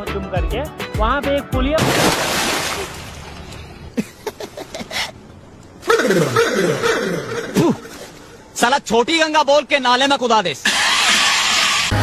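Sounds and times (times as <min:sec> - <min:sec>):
water splashing: 0:01.8 - 0:03.8.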